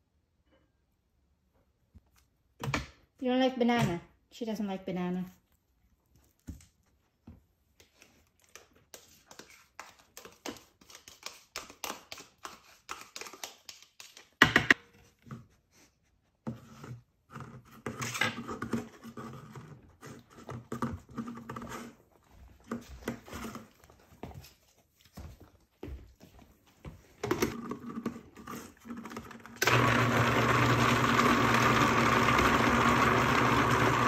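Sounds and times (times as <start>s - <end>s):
spoon scraping plastic cup: 16.5s - 22.0s, 27.5s - 29.6s.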